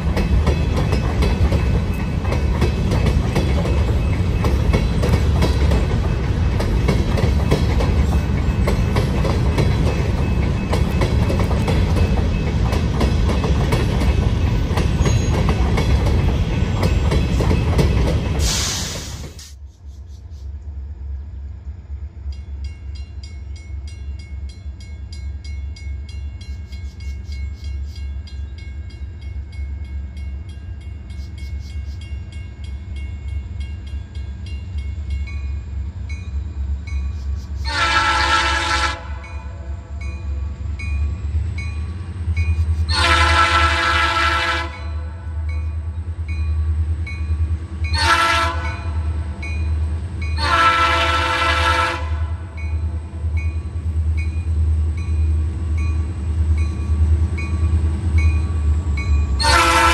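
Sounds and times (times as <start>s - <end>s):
passing train noise: 0.0s - 59.9s
air horn blast: 37.7s - 39.2s, 42.9s - 44.8s, 48.0s - 48.8s, 50.4s - 52.4s, 59.4s - 59.9s.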